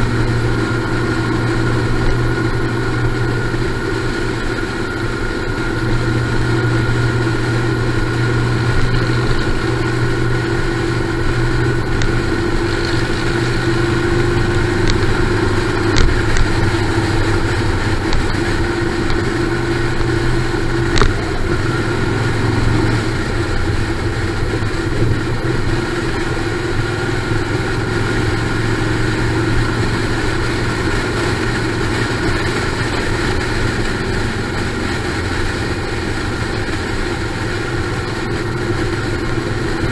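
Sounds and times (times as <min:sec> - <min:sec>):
motorcycle engines cruising: 0:00.0 - 0:39.9
wind and road noise: 0:00.0 - 0:39.9.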